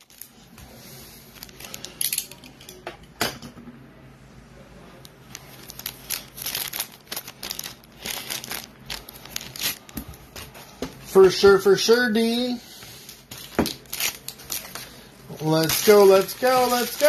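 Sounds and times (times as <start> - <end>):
plastic wrapping crinkling: 0.0 - 0.4, 1.3 - 2.3, 5.2 - 10.6, 13.1 - 17.0.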